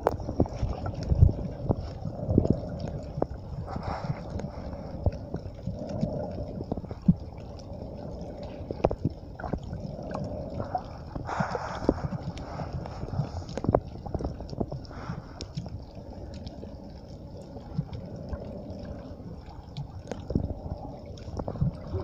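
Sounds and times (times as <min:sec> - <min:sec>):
underwater water noise: 0:00.0 - 0:22.0.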